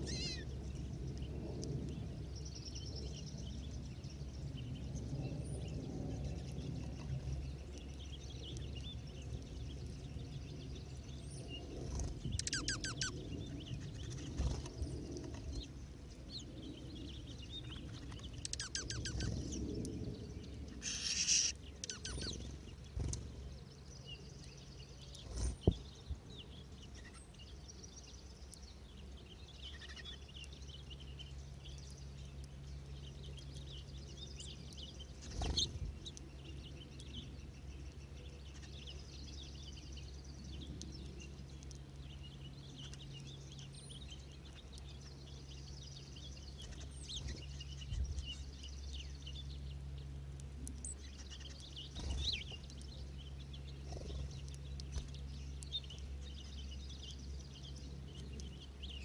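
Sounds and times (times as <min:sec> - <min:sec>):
bird trills: 0:00.0 - 0:00.4, 0:12.0 - 0:13.2, 0:17.8 - 0:19.4, 0:20.8 - 0:23.2
birds chirping and twittering: 0:00.0 - 0:59.0
low steady hum: 0:00.0 - 0:59.0.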